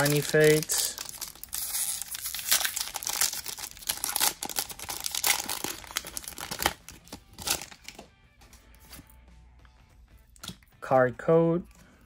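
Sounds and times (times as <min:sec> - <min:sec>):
foil wrapper crinkling and tearing: 0:00.0 - 0:08.0.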